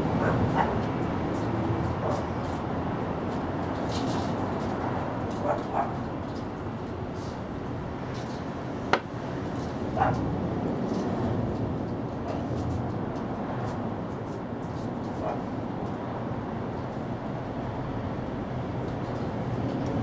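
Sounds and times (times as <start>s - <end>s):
steady background noise: 0.0s - 20.0s.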